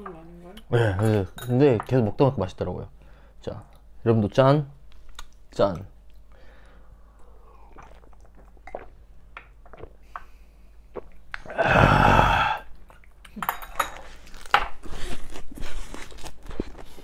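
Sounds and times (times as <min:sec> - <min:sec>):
man drinking and swallowing: 0:07.1 - 0:13.1
rough throaty exhale: 0:11.5 - 0:12.7.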